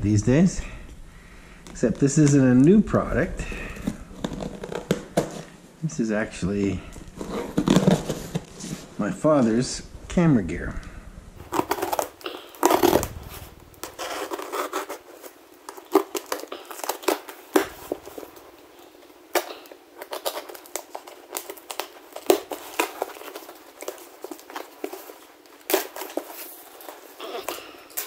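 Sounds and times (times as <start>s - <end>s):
cardboard rustling and knocking: 7.2s - 8.9s
packing tape slit and torn: 11.4s - 28.0s.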